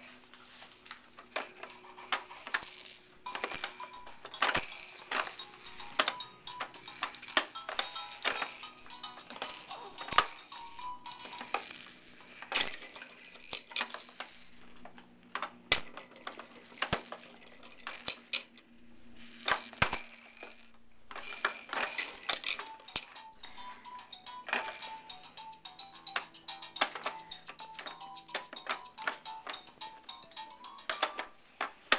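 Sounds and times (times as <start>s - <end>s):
plastic toy clacking: 1.3s - 14.5s, 15.4s - 18.6s, 19.2s - 23.5s, 24.3s - 31.9s
electronic toy melody: 3.2s - 12.4s, 22.4s - 31.5s.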